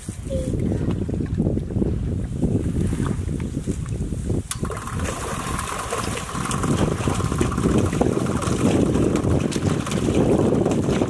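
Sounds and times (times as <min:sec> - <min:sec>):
wind on microphone: 0:00.0 - 0:11.0
paddle wheel moving through water: 0:04.4 - 0:11.0.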